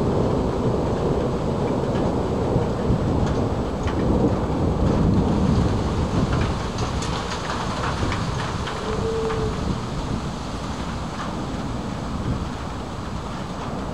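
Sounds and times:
steady rain: 0:00.0 - 0:13.9
thunder rumbling: 0:00.0 - 0:13.9
raindrop taps: 0:00.5 - 0:09.8.

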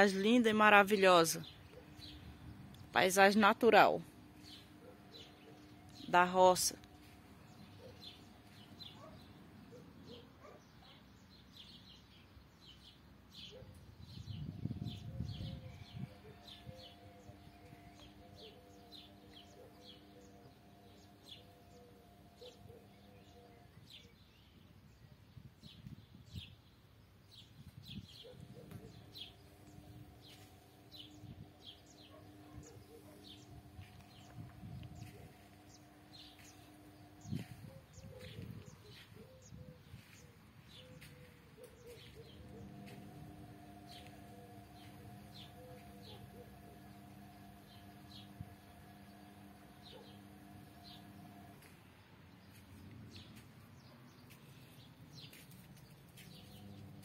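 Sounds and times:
small birds chirping: 0:00.0 - 0:57.0
faint low hum: 0:41.0 - 0:51.8.

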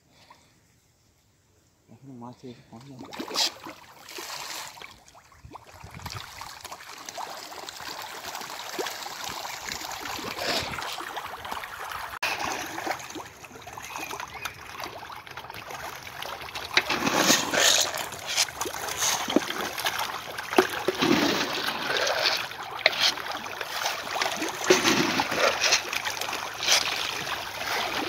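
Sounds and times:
fish splashing at water surface: 0:05.6 - 0:28.0.

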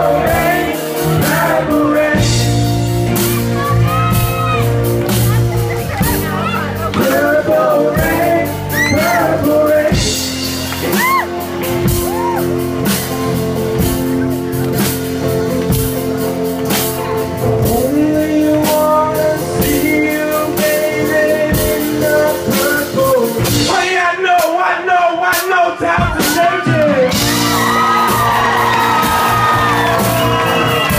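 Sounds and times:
man singing: 0:00.0 - 0:03.7, 0:06.4 - 0:11.0, 0:17.4 - 0:27.4
electric guitars sustained chords: 0:00.0 - 0:23.4
steady drum beat: 0:00.0 - 0:24.6, 0:25.3 - 0:30.9.

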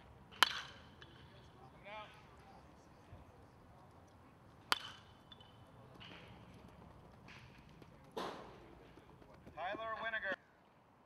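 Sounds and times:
bat cracking a ball: 0:00.3 - 0:01.1, 0:04.7 - 0:06.3, 0:07.2 - 0:08.6.

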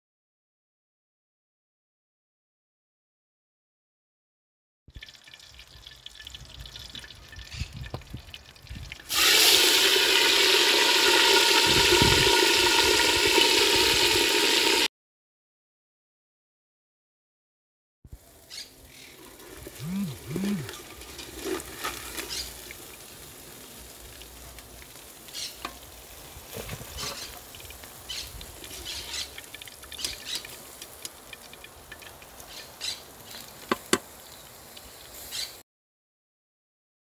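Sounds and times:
fish sizzling in hot oil: 0:04.9 - 0:14.9, 0:18.1 - 0:19.9, 0:20.6 - 0:35.6
oil crackling and popping: 0:04.9 - 0:14.9, 0:18.1 - 0:35.5.

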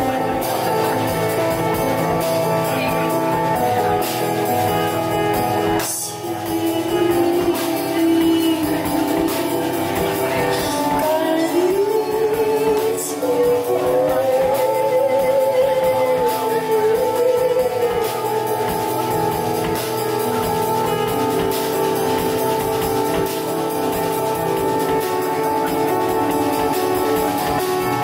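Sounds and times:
live band playing chords: 0:00.0 - 0:28.0
woman singing jazzy ballad: 0:05.6 - 0:19.4.

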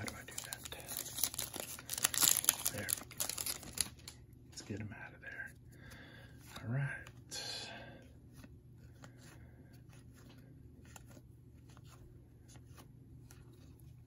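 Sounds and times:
cards rustling: 0:00.0 - 0:04.8, 0:08.2 - 0:14.0.

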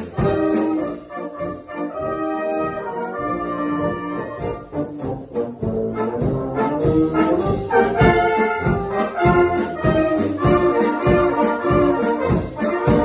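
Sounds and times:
brass band playing a polka: 0:00.0 - 0:13.0.

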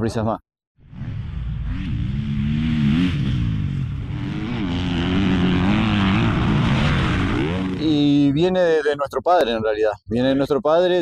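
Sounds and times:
motocross bike engine revving: 0:00.8 - 0:08.3.

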